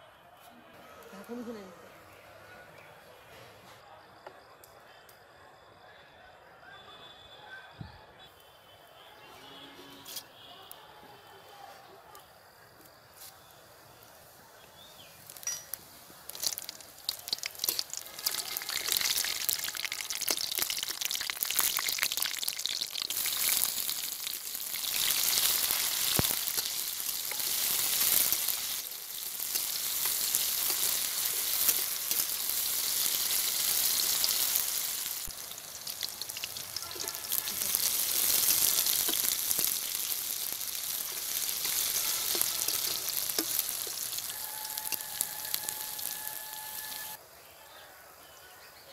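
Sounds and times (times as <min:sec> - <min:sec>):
onions sizzling as they fry: 0:12.6 - 0:47.2
seeds crackling in hot oil: 0:12.8 - 0:47.2
metal spatula stirring in wok: 0:15.4 - 0:21.2, 0:22.7 - 0:34.4, 0:35.6 - 0:46.1.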